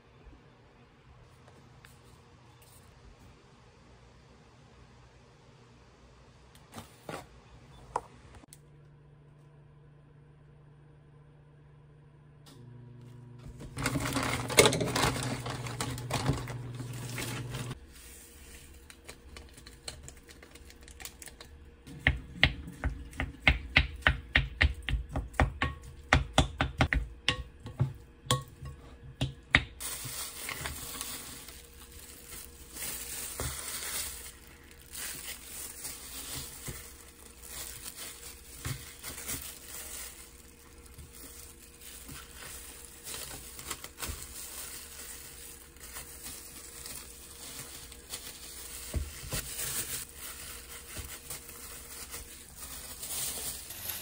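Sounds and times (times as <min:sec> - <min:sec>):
rustling and handling noises: 0:13.4 - 0:22.0, 0:29.8 - 0:54.0.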